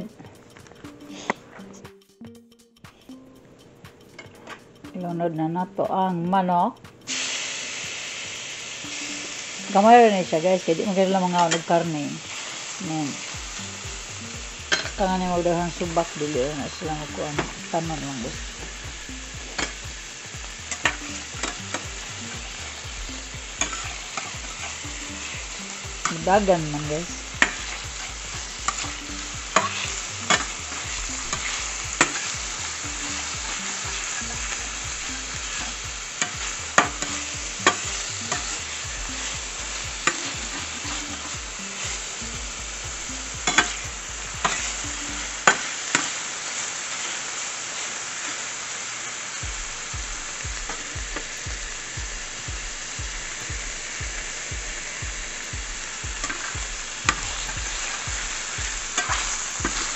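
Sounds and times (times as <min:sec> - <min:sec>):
chicken sizzling in a frying pan: 0:07.1 - 0:59.9
spatula knocking and scraping pan: 0:23.5 - 0:26.2, 0:27.3 - 0:32.6, 0:33.2 - 0:42.0, 0:43.4 - 0:44.8, 0:56.1 - 0:59.9.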